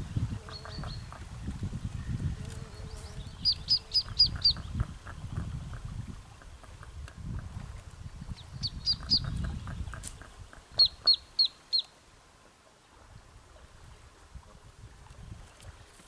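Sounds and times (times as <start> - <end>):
ducklings peeping: 0.4 - 1.2, 2.8 - 5.8, 8.3 - 11.9.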